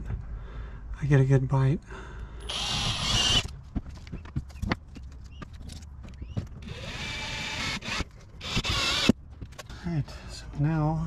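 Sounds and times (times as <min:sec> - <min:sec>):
drill grinding into metal: 0:02.5 - 0:03.5, 0:06.6 - 0:09.2.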